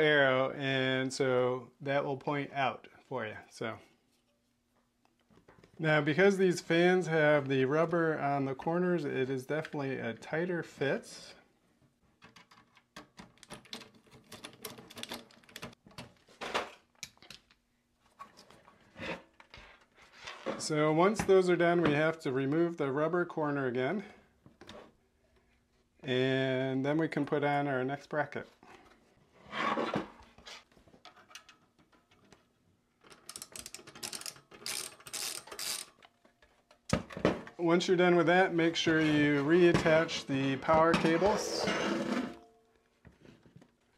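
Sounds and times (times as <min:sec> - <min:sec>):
screwdriver turning screws: 0:33.1 - 0:36.1.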